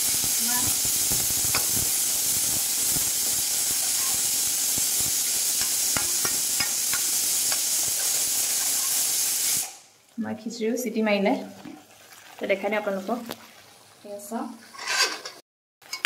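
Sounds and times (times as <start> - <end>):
paste sizzling in oil: 0.0 - 9.8, 11.6 - 16.0
spatula clicking against pan: 5.6 - 7.7.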